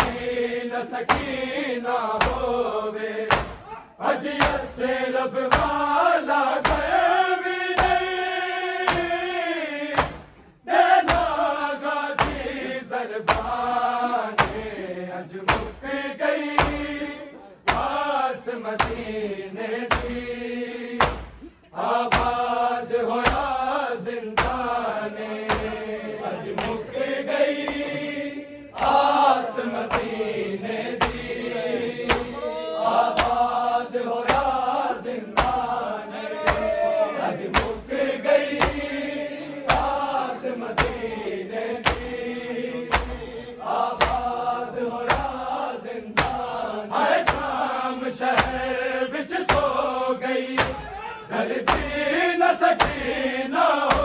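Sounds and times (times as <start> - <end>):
hands slapping chests: 0.0 - 0.4, 1.0 - 1.4, 2.1 - 2.6, 3.3 - 4.8, 5.5 - 8.2, 8.8 - 9.3, 9.9 - 14.8, 15.4 - 18.1, 18.7 - 19.2, 19.8 - 20.3, 21.0 - 23.7, 24.3 - 24.8, 25.4 - 32.4, 33.0 - 35.8, 36.4 - 41.2, 41.8 - 42.2, 42.8 - 48.8, 49.4 - 49.8, 50.5 - 52.1, 52.7 - 53.2, 53.8 - 54.0
men chanting: 0.0 - 54.0.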